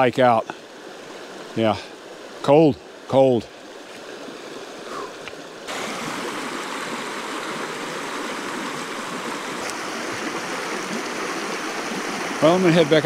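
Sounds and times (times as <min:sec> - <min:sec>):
river rushing over rocks: 0:03.6 - 0:13.0.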